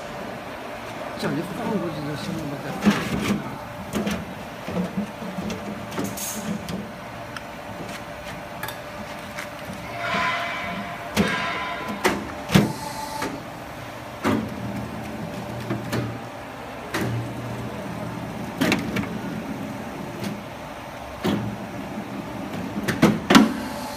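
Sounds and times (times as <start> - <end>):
sharp metallic knocks: 9.8 - 12.3.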